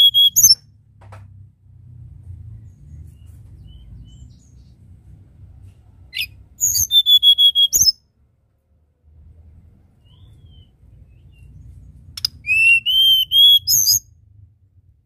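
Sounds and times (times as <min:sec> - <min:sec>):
bird singing: 0:00.0 - 0:00.6, 0:02.6 - 0:05.0, 0:06.2 - 0:08.0, 0:10.0 - 0:14.2.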